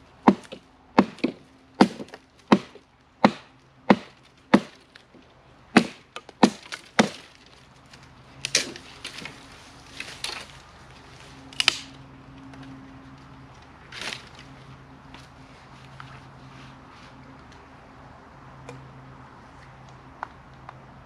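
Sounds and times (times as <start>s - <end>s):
axe strikes chopping wood: 0.2s - 4.8s, 5.8s - 7.3s
wood cracking and snapping: 5.8s - 9.4s, 11.5s - 12.0s.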